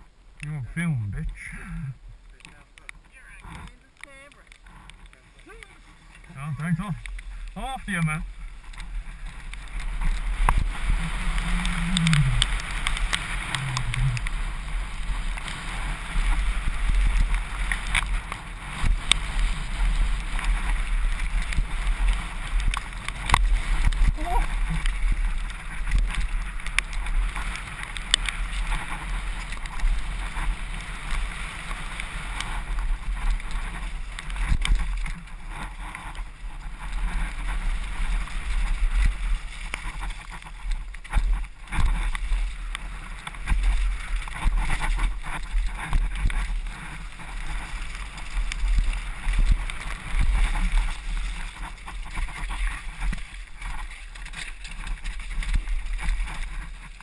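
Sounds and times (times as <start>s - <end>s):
bike rattling over bumps: 2.4s - 57.0s
low rumble: 4.6s - 18.2s
wind buffeting microphone: 4.6s - 57.0s.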